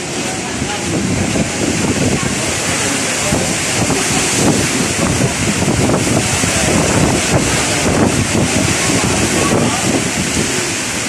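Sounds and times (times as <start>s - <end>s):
heavy rain hissing: 0.0s - 11.0s
wind buffeting microphone: 0.0s - 11.0s.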